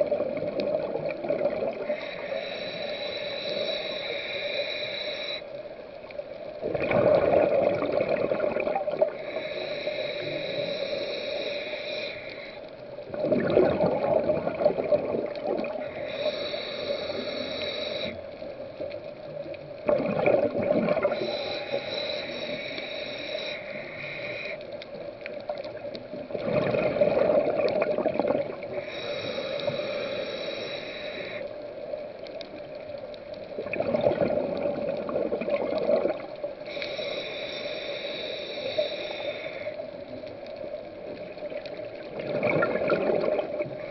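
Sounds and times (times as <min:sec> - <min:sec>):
bubbling exhale: 0:00.0 - 0:05.4, 0:06.6 - 0:18.2, 0:19.8 - 0:24.6, 0:25.8 - 0:31.5, 0:33.6 - 0:39.9, 0:41.4 - 0:43.9
diver hissing inhale: 0:01.7 - 0:05.7, 0:08.8 - 0:13.0, 0:15.6 - 0:18.5, 0:21.0 - 0:25.0, 0:28.6 - 0:31.7, 0:36.4 - 0:40.5.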